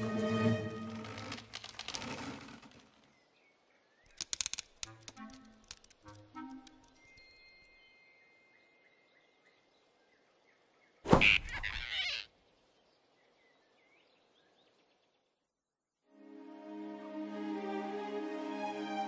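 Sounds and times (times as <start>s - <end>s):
soft music: 0.0s - 1.4s, 4.8s - 9.4s, 16.1s - 19.0s.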